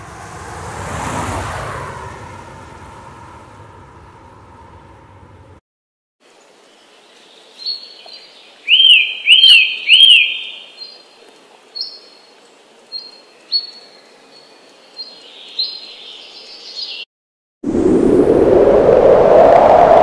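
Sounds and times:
birds chirping: 0:06.9 - 0:17.0.

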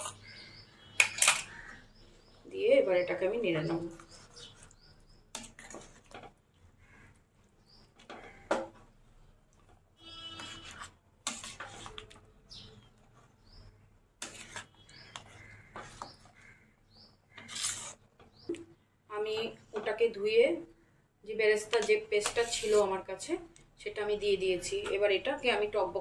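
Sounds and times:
metal spatula scraping a pan: 0:00.0 - 0:01.7, 0:03.9 - 0:06.3, 0:10.0 - 0:13.6, 0:14.2 - 0:16.5, 0:17.3 - 0:18.3, 0:21.6 - 0:23.0.

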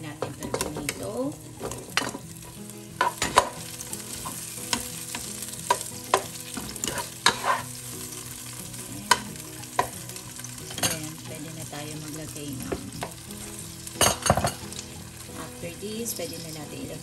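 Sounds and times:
vegetables sizzling in hot oil: 0:00.0 - 0:17.0
plastic spatula scraping pot: 0:06.8 - 0:07.7.

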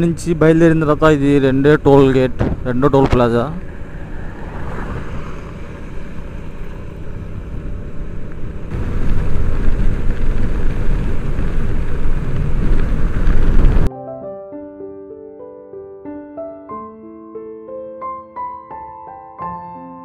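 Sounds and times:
wind and road rush: 0:00.0 - 0:13.9
motorcycle engine running: 0:05.0 - 0:13.9
soft piano music: 0:13.8 - 0:20.0.

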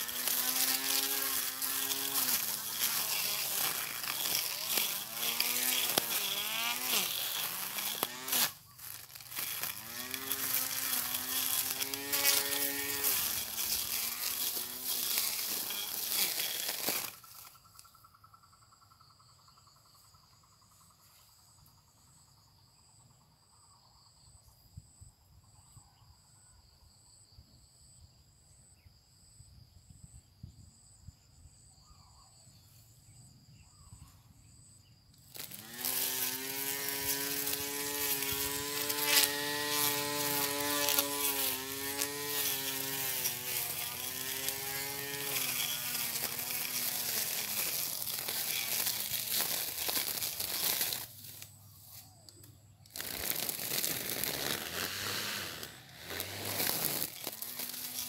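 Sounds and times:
electric lawn mower motor whining: 0:00.0 - 0:17.6, 0:35.2 - 0:58.0
faint insects chirping: 0:00.0 - 0:58.0.

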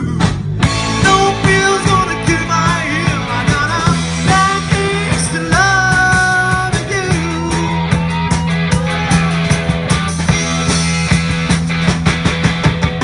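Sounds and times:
person singing: 0:00.0 - 0:09.4
electric guitars: 0:00.0 - 0:13.0
steady drum beat: 0:00.0 - 0:13.0.

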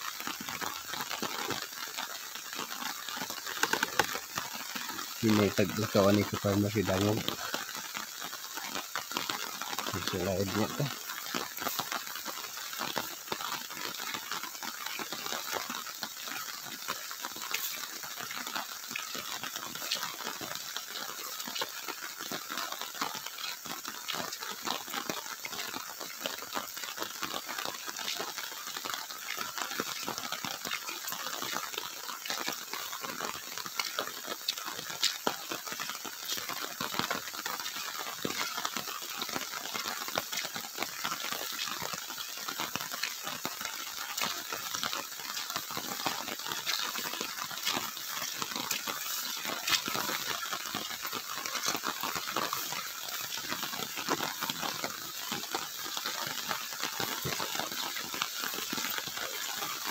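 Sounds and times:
footsteps on dirt path: 0:46.2 - 0:59.9.

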